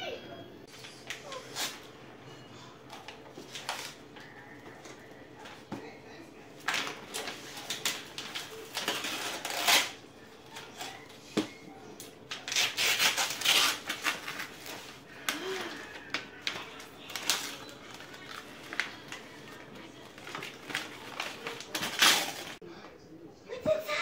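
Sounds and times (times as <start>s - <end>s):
tissue paper rustling: 2.9s - 5.6s, 12.3s - 22.6s.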